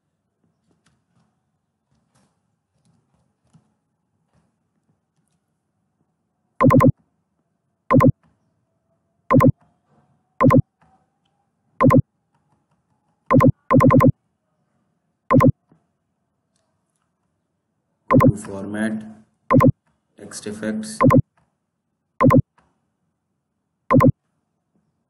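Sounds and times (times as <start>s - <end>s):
mouse clicks: 6.6s - 6.9s, 7.9s - 8.1s, 9.3s - 9.5s, 10.4s - 10.6s, 11.8s - 12.0s, 13.3s - 14.1s, 15.3s - 15.5s, 18.1s - 18.4s, 19.5s - 19.7s, 21.0s - 21.2s, 22.2s - 22.4s, 23.9s - 24.1s.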